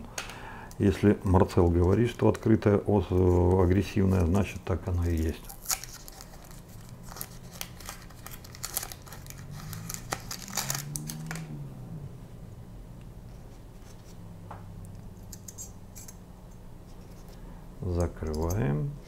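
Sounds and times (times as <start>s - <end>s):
paper wrapper crinkling: 1.6s - 11.5s.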